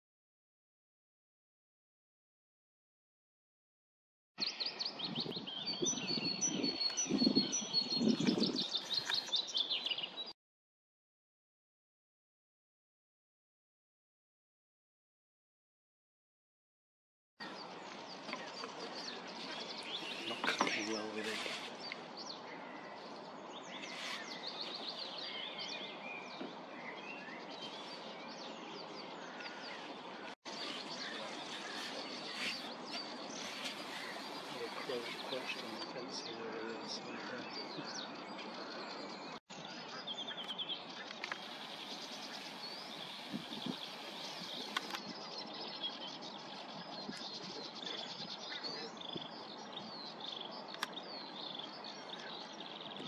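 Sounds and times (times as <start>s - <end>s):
songbirds chirping and whistling: 4.4s - 10.3s, 17.4s - 53.0s.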